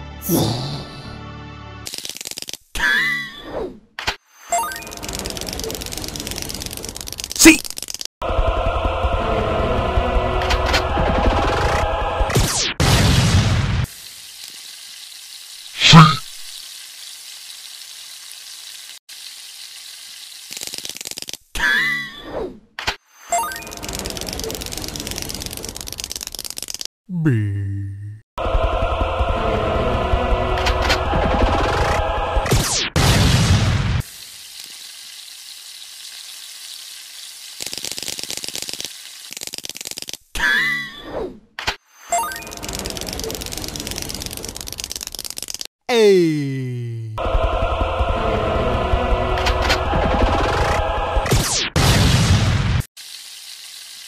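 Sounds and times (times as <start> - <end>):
quick fluttering rattle: 1.9 - 2.6, 4.8 - 8.1, 19.4 - 21.5, 23.7 - 26.9, 36.9 - 40.3, 42.4 - 45.7
rapid crackling: 5.0 - 8.1, 23.9 - 26.9, 37.5 - 40.2, 42.7 - 45.7
cartoon sizzling hiss: 13.7 - 21.4, 33.9 - 40.2, 53.0 - 54.0.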